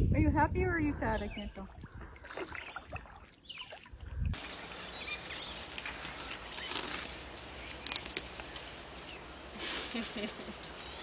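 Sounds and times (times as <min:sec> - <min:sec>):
steady hiss: 0:04.4 - 0:11.0.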